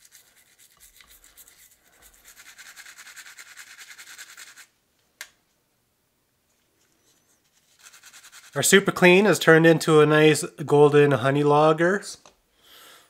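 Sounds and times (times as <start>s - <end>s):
toothbrush scrubbing: 0.0s - 4.7s, 7.5s - 8.8s.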